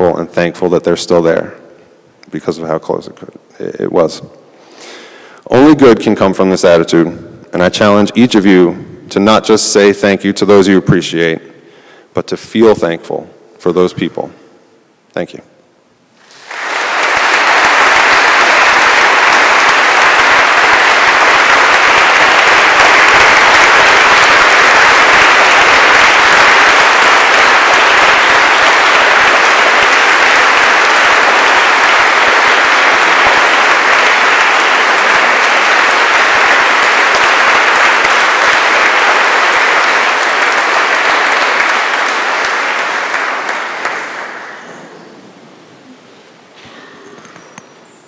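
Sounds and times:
audience applause: 16.2s - 44.9s.

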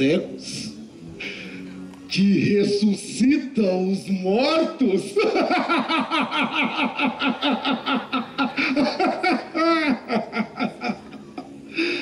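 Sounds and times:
man laughing mockingly: 5.2s - 11.4s.

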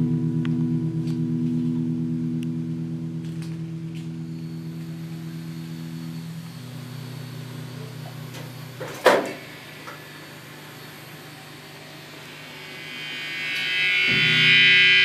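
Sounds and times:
sustained high guitar notes: 0.0s - 8.8s, 9.4s - 15.0s
distorted electric guitar chord: 0.0s - 15.0s.

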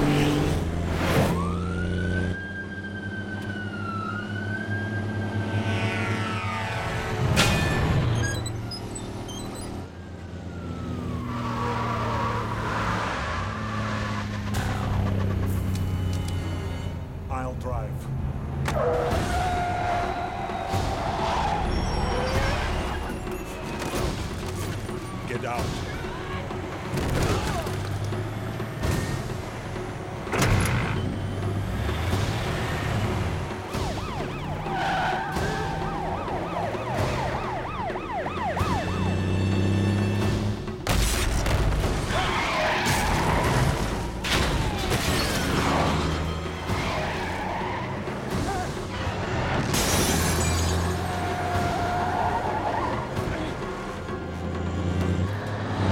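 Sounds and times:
police car siren: 1.0s - 7.2s, 8.2s - 16.3s, 18.7s - 26.9s, 32.6s - 40.8s, 42.1s - 49.6s, 50.9s - 54.6s
siren wail falling in pitch: 1.2s - 7.0s, 9.7s - 14.4s, 33.6s - 39.6s
horn blast: 5.5s - 7.2s.

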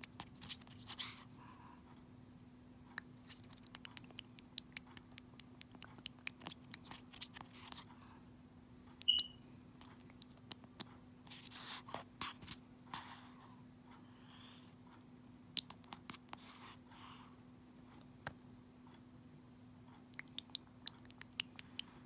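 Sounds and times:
parrot beak clicking and smacking: 2.9s - 7.9s, 9.0s - 12.6s, 15.3s - 16.5s, 20.1s - 22.0s
parrot slurping: 3.0s - 7.8s
parrot squeak: 9.0s - 9.4s.

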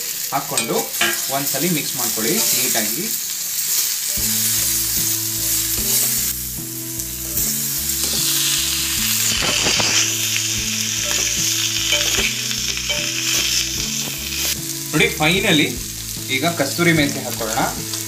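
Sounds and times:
potatoes sizzling in oil: 0.0s - 18.0s
metal spatula scraping pan: 7.2s - 13.5s.

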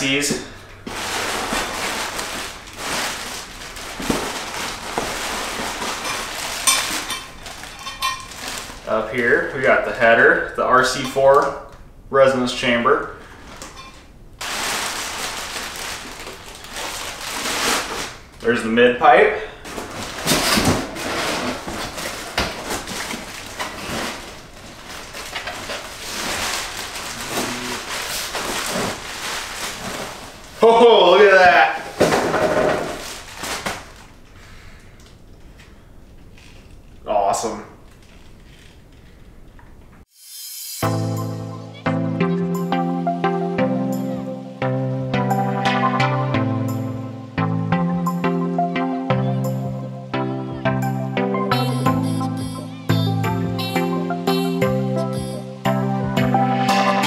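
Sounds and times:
bubble wrap crinkling: 0.0s - 10.0s, 13.3s - 18.5s, 19.6s - 30.8s, 31.8s - 37.0s
cardboard rustling and scraping: 0.8s - 9.5s, 13.3s - 18.4s, 19.7s - 30.6s.

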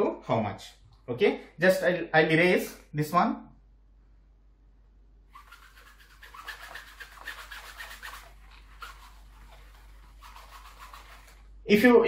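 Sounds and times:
eraser wiping whiteboard: 5.4s - 11.5s.

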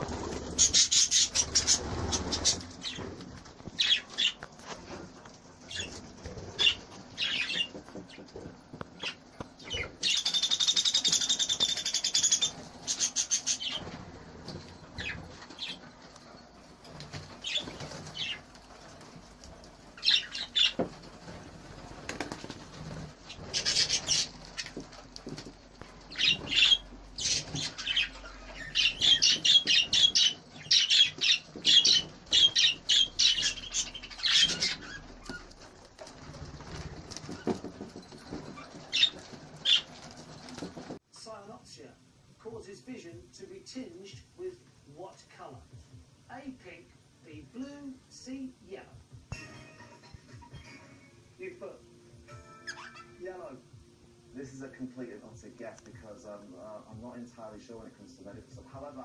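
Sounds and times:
wings fluttering: 0.0s - 41.0s
budgerigars chirping: 0.1s - 3.1s, 3.8s - 4.4s, 5.7s - 8.2s, 9.0s - 13.9s, 17.3s - 18.4s, 20.0s - 20.9s, 23.3s - 24.8s, 26.1s - 35.7s, 38.5s - 40.0s, 52.7s - 53.2s.

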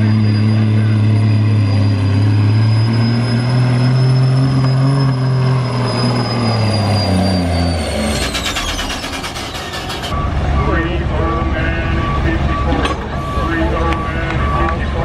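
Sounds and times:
turbo whistle: 0.0s - 10.0s
diesel truck engine under load: 0.0s - 15.0s.

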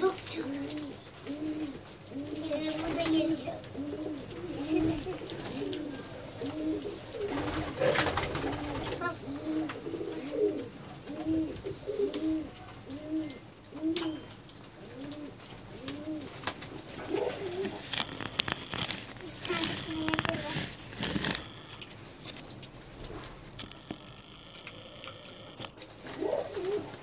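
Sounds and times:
pigeons cooing: 0.0s - 18.2s, 25.9s - 27.0s.

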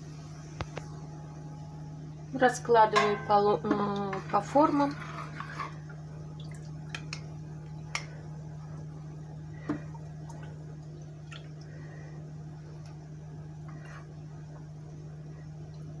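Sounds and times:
steady low hum: 0.0s - 16.0s
metal ladle clinking ceramic: 3.0s - 3.4s
soft wet liquid sounds: 3.7s - 16.0s.

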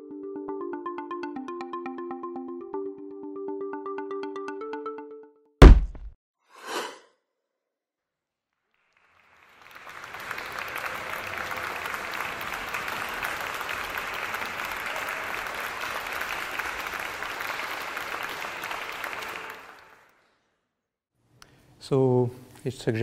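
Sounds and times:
audience applauding: 8.7s - 20.2s.

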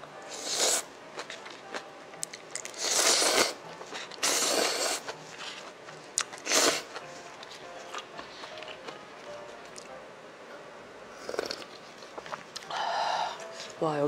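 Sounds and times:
person slurping noodles: 0.3s - 0.8s, 2.7s - 3.6s, 4.2s - 5.1s, 6.4s - 6.9s.

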